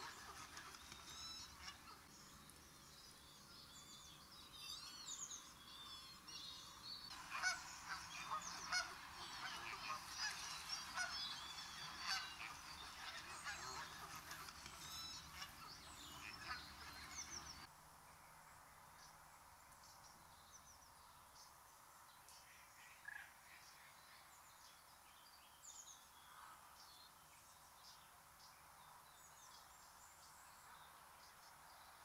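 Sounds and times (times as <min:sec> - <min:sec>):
geese honking: 0:00.0 - 0:02.1, 0:07.1 - 0:17.7.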